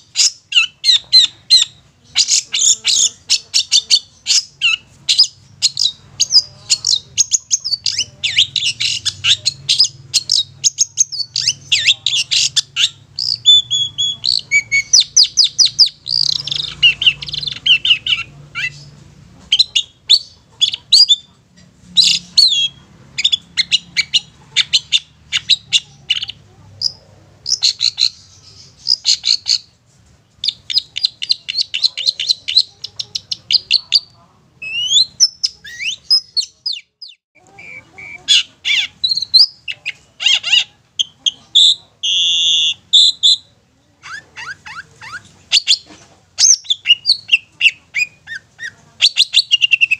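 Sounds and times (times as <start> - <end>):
shrike singing fast chatter: 0.0 - 21.3.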